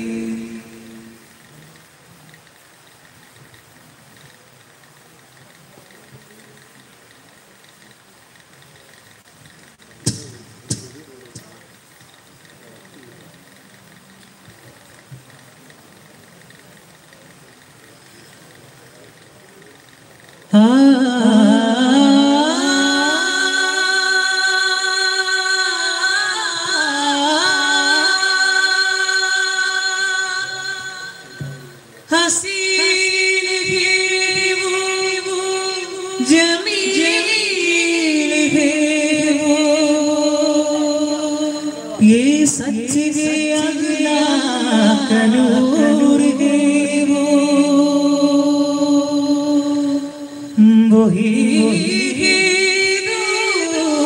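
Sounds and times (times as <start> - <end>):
man singing into a microphone: 20.5 - 54.0.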